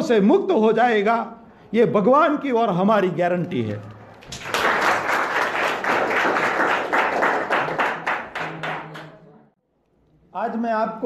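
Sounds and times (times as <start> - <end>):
people clapping: 4.1 - 9.4.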